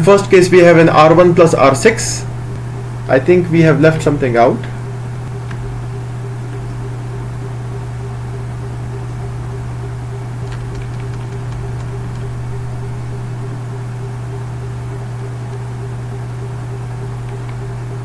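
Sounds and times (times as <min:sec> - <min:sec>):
low hum with faint hiss: 0:00.0 - 0:18.0
faint clicks: 0:17.1 - 0:17.8.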